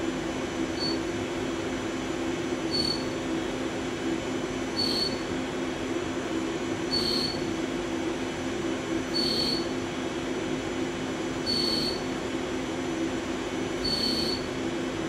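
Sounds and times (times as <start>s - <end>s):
machine hum: 0.0s - 15.0s
high-pitched milling squeal: 2.7s - 3.1s, 4.8s - 5.2s, 7.0s - 7.4s, 9.2s - 9.7s, 11.5s - 12.0s, 13.8s - 14.4s.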